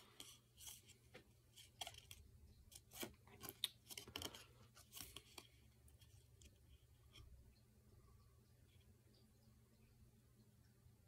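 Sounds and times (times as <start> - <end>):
cardstock rustling and snapping: 0.2 - 5.6.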